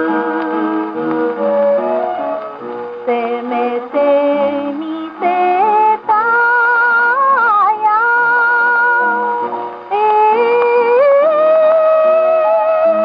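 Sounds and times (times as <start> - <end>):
woman singing: 0.0 - 0.8, 3.0 - 13.0
shakuhachi flute: 1.4 - 2.6.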